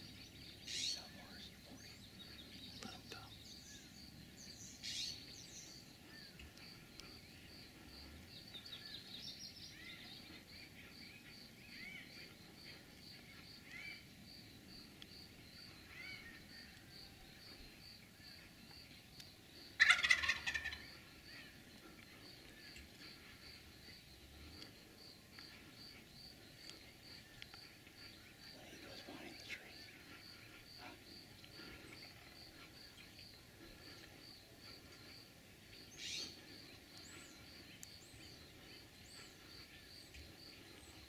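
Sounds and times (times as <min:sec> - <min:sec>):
faint bird chirps: 0:00.0 - 0:41.0
turkey gobbling: 0:19.8 - 0:21.0.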